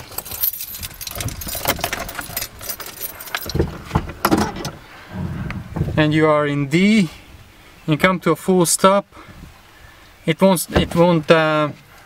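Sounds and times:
keys jangling: 0.0 - 3.8
handling knocks: 10.7 - 11.3.

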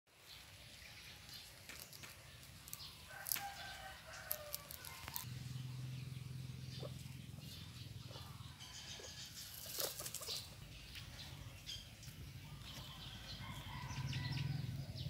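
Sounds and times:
guinea pigs chewing grass: 0.7 - 5.3, 6.7 - 13.0.

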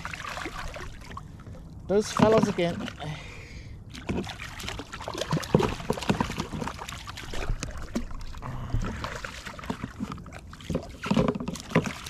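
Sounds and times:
water splashing and sloshing: 0.0 - 12.0
clicks and knocks from rod and boat: 2.0 - 3.0, 3.9 - 12.0.

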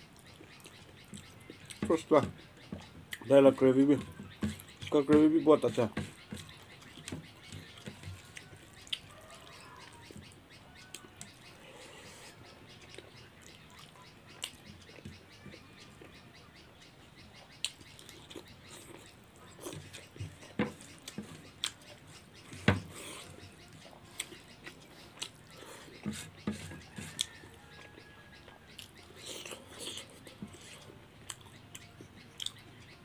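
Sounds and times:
faint bird chirps: 0.0 - 33.0
fingers scraping rice on plate: 25.5 - 27.5.

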